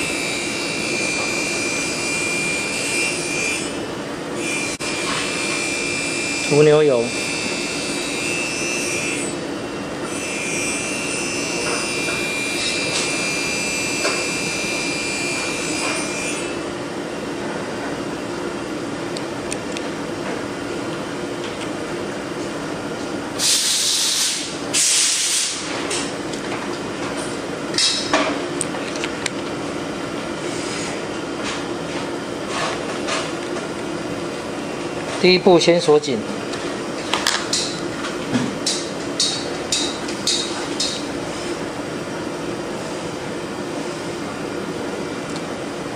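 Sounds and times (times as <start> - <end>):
mechanical drone hum: 0.0 - 23.4.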